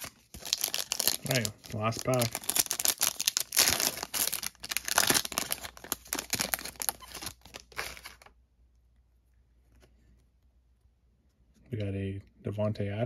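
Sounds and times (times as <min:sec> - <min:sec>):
foil wrapper crinkling and tearing: 0:00.0 - 0:08.3.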